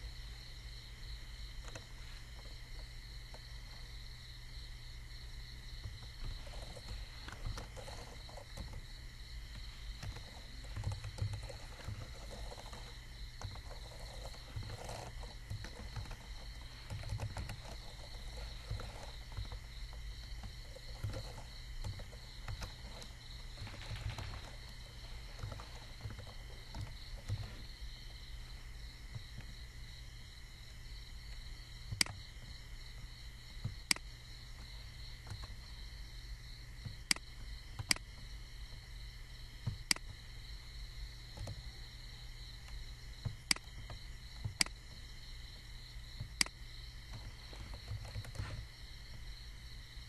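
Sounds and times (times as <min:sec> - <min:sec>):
low electrical hum: 0:00.0 - 0:50.0
keyboard typing: 0:09.5 - 0:27.6.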